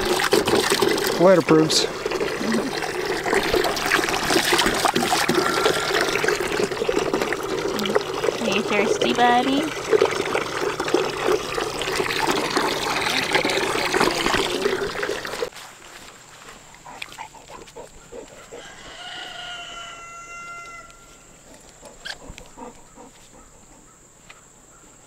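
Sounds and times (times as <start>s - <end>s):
dog lapping water: 0.0s - 15.5s, 16.8s - 18.7s, 21.4s - 23.9s
water splashing: 0.0s - 15.5s.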